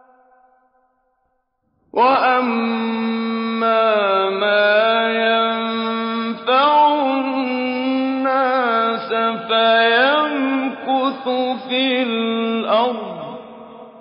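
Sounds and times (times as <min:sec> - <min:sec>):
man chanting melodically: 0:02.0 - 0:13.8.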